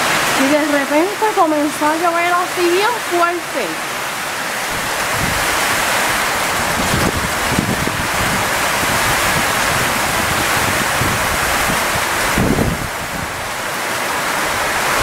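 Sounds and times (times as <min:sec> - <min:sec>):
heavy rain pouring: 0:00.0 - 0:15.0
gusty wind buffeting microphone: 0:04.2 - 0:15.0.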